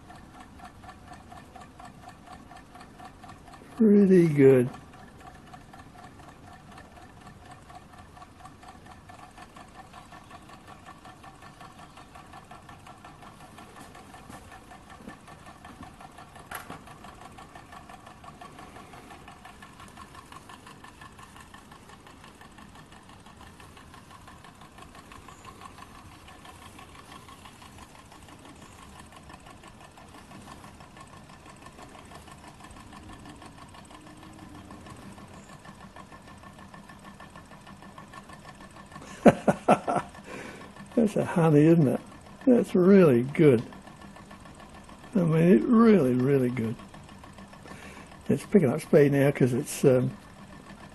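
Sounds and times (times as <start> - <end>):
stirling engine ticking clatter: 0.0 - 50.9.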